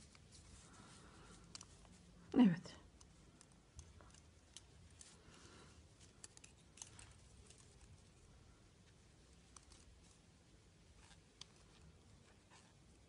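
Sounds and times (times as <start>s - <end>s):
knitting needles clicking: 1.2s - 8.2s, 11.0s - 12.0s.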